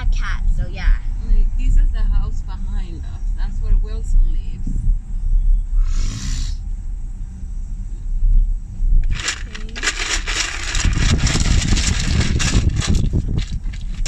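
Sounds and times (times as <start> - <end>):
car cabin road rumble: 0.0 - 14.0
dense crackling: 8.3 - 14.0.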